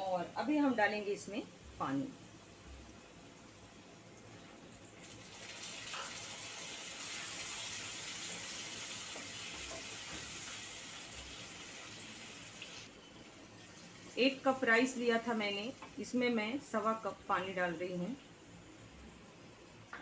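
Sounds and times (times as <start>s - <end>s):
water pouring into a pan: 5.0s - 12.9s.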